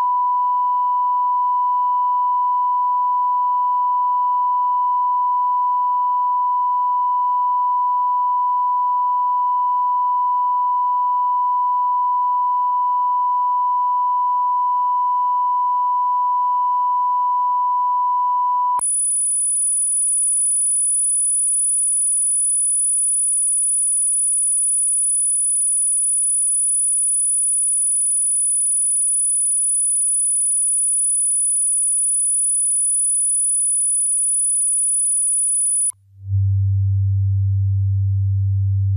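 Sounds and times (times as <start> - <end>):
mid-pitched test tone: 11.6 - 38.9
high-pitched test tone: 18.8 - 36.5.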